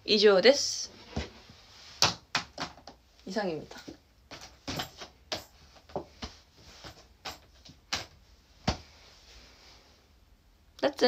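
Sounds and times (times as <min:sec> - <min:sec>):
objects knocking and clicking: 0:03.7 - 0:08.8.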